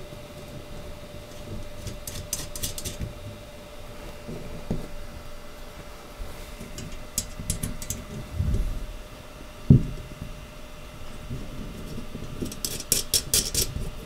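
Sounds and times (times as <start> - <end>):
metal bolts and nuts clicking: 12.5 - 13.7.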